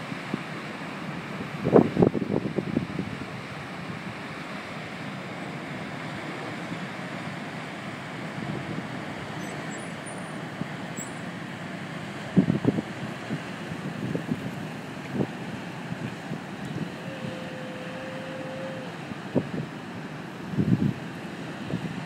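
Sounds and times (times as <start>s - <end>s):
propeller churning water: 0.0s - 22.0s
ship engine rumble: 0.0s - 22.0s
wind noise on microphone: 1.2s - 4.3s, 8.3s - 9.4s, 12.2s - 19.8s, 20.4s - 22.0s.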